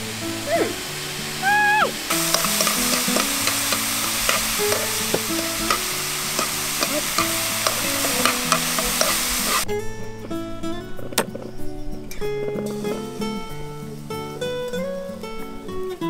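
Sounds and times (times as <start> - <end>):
noodles sizzling in a frying pan: 0.0 - 9.6
chopsticks clicking against pan: 2.1 - 9.6.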